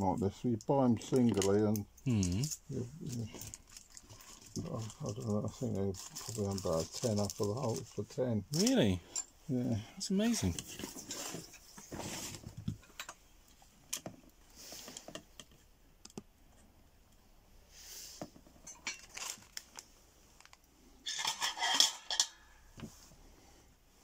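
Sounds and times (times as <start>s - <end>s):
objects clattering and rattling: 1.0s - 9.4s, 10.2s - 13.2s, 18.2s - 19.8s, 20.4s - 23.0s
tools clicking and tapping: 14.9s - 16.3s.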